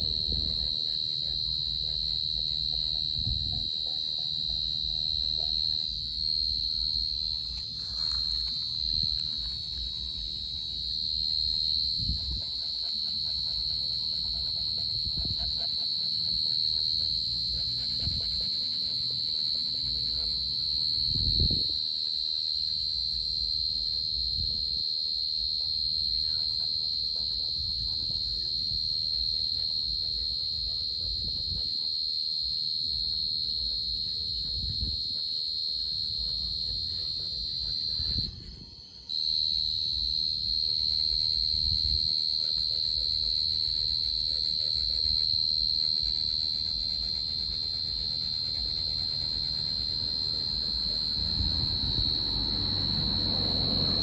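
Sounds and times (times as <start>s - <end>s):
cricket trilling: 0.0s - 54.0s.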